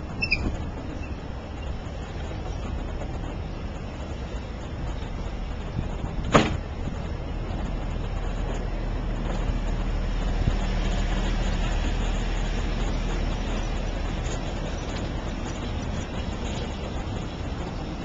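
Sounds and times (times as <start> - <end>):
train carriages rumbling past: 0.0 - 18.0.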